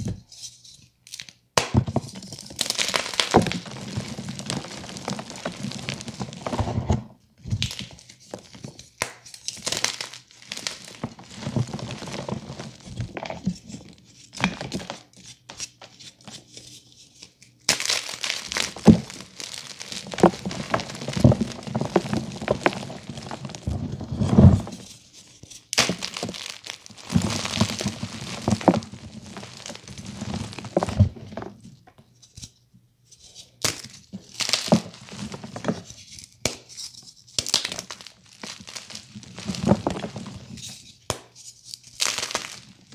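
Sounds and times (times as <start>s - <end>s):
chalk pieces snapping: 17.4s - 21.4s.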